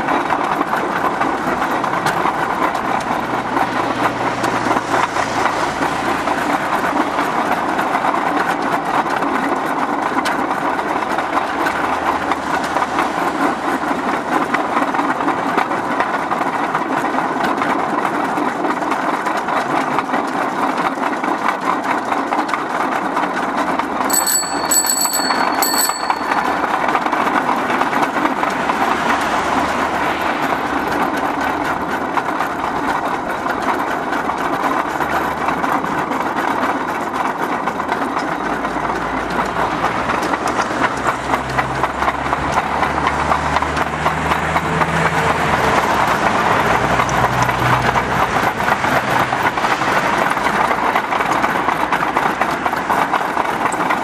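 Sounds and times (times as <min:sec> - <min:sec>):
wheels rolling on steel rails: 0:00.0 - 0:54.0
bell ringing: 0:24.1 - 0:27.7.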